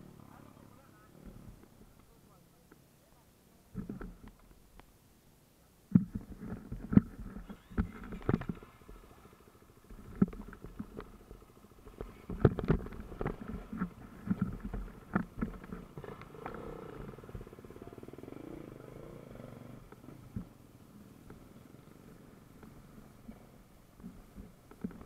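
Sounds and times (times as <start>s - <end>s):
dirt bike engine idling: 6.3s - 25.0s.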